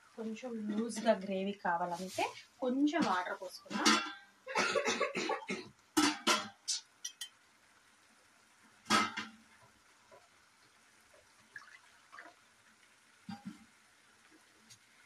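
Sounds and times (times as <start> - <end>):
kitchen utensils and dishes clattering: 0.6 - 1.3, 2.8 - 7.4, 8.8 - 9.4.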